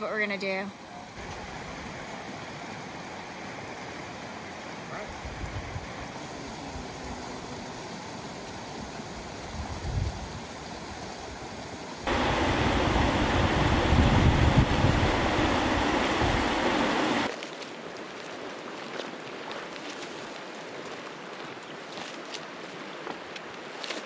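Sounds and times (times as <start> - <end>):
river rushing: 0.8 - 9.7, 10.3 - 24.0
low wind buffets on microphone: 5.0 - 7.2, 8.8 - 17.3.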